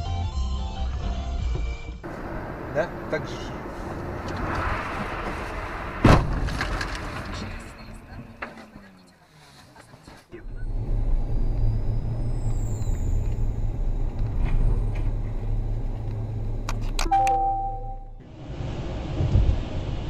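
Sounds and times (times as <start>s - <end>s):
engine and tyre rumble: 0.8s - 20.0s
electronic chime: 17.1s - 18.1s.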